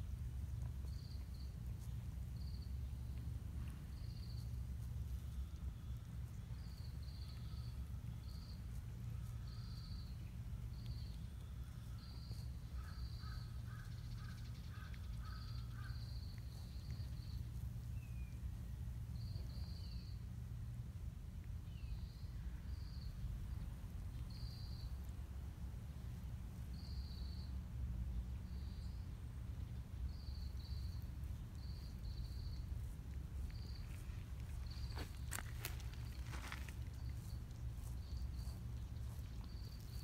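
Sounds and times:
steady low rumble: 0.0 - 40.0.

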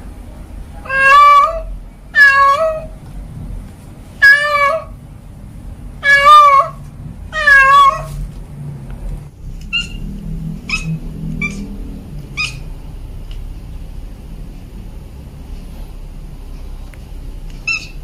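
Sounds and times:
cat chirping: 0.8 - 2.9, 4.2 - 5.0, 6.0 - 8.2, 9.6 - 12.8, 17.5 - 18.0
cat meowing: 0.8 - 2.9, 4.2 - 5.0, 6.0 - 8.2, 9.7 - 10.0, 10.6 - 11.7, 12.3 - 12.7, 17.6 - 18.0.

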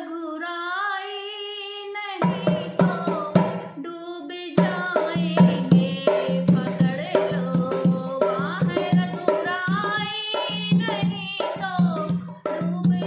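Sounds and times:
woman singing: 0.0 - 13.0
hand drum beating: 2.2 - 3.7, 4.6 - 13.0.

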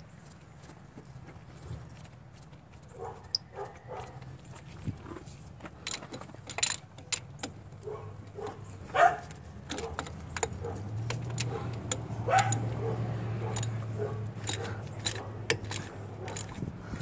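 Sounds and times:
ratchet wrench clicks: 9.6 - 12.7, 13.5 - 13.8, 14.4 - 16.6.

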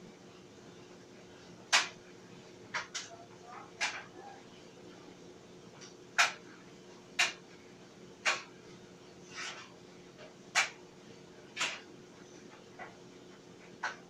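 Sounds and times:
clothes dryer humming: 0.0 - 14.0.

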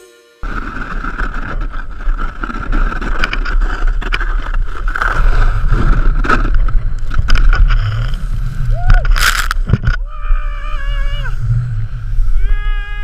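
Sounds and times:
snowboard carving over snow: 0.4 - 13.0.

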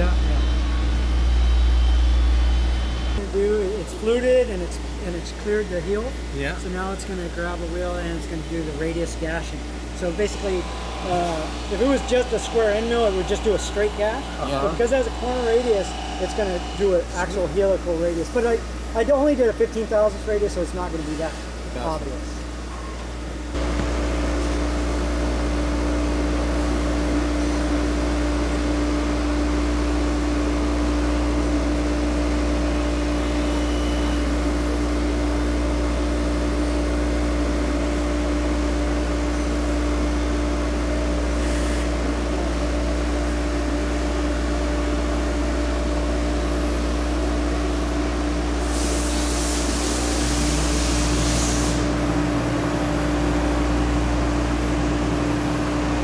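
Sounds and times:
tool grinder humming: 7.6 - 18.9, 48.6 - 56.0
loud high hiss: 10.0 - 18.1, 48.6 - 52.0
coolant spray hiss: 48.6 - 52.0.

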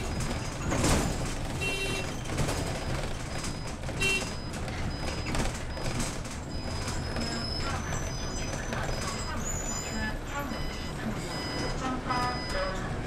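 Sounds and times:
bus engine and road rumble: 0.0 - 13.0
short electronic beep: 8.9 - 12.9.

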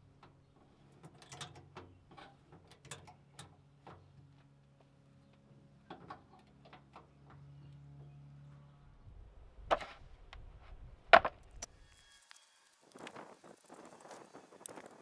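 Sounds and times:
clicks of pliers and wire: 1.0 - 1.8, 2.6 - 3.6.

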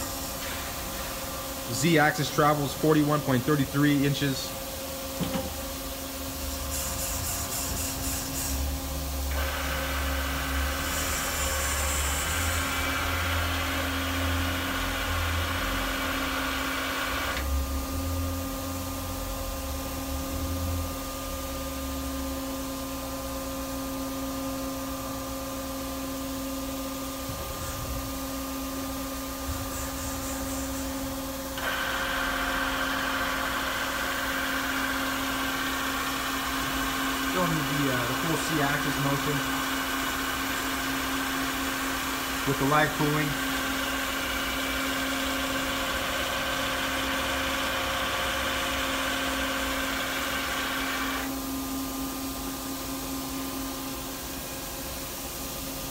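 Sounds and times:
machine tool humming: 0.0 - 17.7, 27.3 - 51.4
louder machine whirring: 6.7 - 17.8, 27.3 - 51.4.

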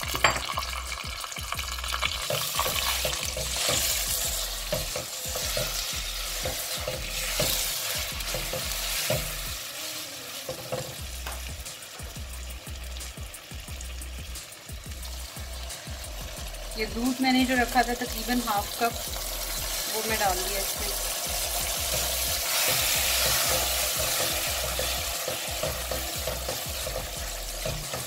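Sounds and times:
spoon scraping and knocking pan: 0.0 - 1.0, 1.9 - 9.6, 10.4 - 12.1, 17.0 - 28.0
sizzling in a frying pan: 0.0 - 28.0.

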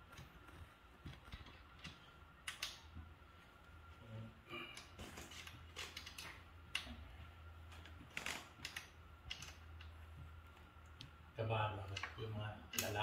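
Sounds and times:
clicks and taps of parts: 0.0 - 3.0, 4.8 - 7.0, 7.8 - 11.2, 11.9 - 13.0.

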